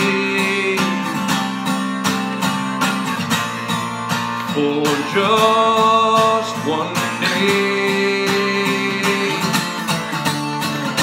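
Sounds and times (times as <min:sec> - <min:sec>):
person singing: 0:00.0 - 0:02.4, 0:04.3 - 0:10.2
acoustic guitar strumming: 0:00.0 - 0:11.0.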